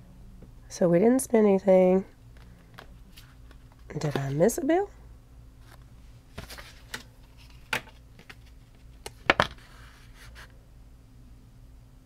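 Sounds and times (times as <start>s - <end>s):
paper rustling: 5.6s - 10.5s.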